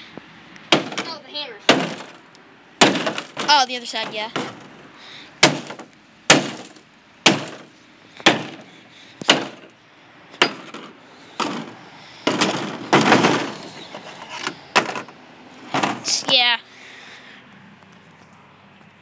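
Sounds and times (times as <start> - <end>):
hammer smashing phone: 0.7 - 1.1, 1.7 - 2.2, 2.8 - 4.7, 5.4 - 9.7, 10.4 - 13.7
scraping clatter: 2.9 - 4.8, 10.4 - 16.4.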